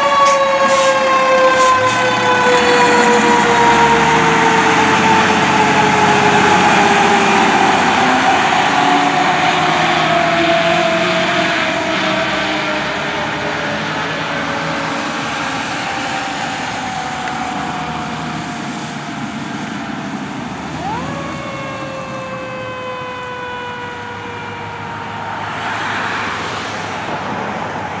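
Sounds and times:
fire truck siren: 0.0 - 28.0
road traffic noise: 0.0 - 28.0
car passing: 1.0 - 28.0.

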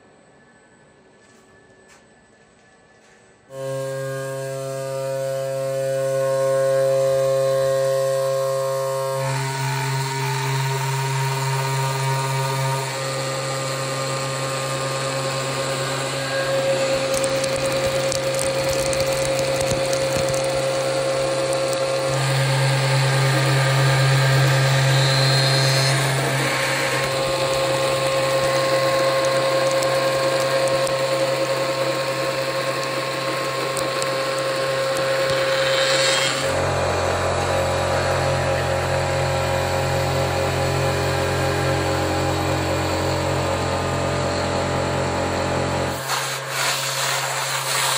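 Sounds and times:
router spindle whine: 0.0 - 46.0
hiss of cutting plastic: 34.8 - 36.6, 45.9 - 47.9.

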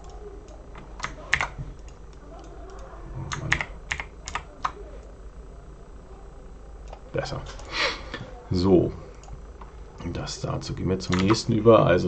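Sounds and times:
keyboard keystrokes: 0.8 - 4.8, 11.1 - 11.4.

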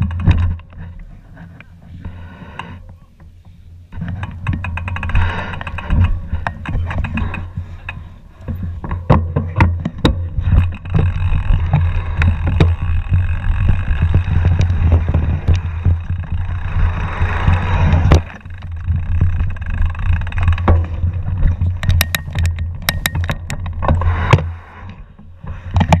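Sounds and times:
bike knocks and rattles: 0.0 - 26.0
wind buffeting microphone: 4.4 - 24.5.

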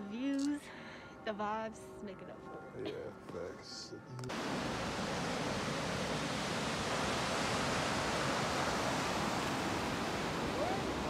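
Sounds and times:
river water rushing: 4.3 - 11.0.

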